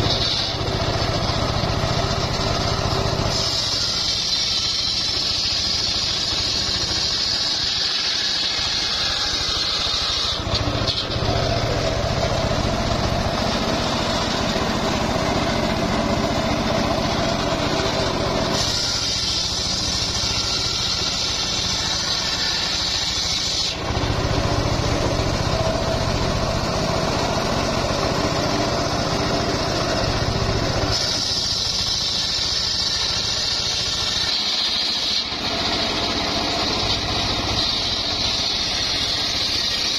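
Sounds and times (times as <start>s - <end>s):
engine hum: 0.0s - 39.9s
saw blade whine: 0.0s - 39.9s.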